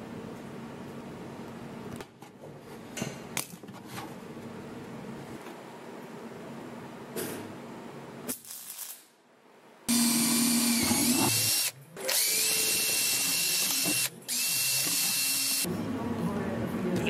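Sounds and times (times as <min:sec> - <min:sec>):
electric drill boring into plastic: 0:09.9 - 0:15.7.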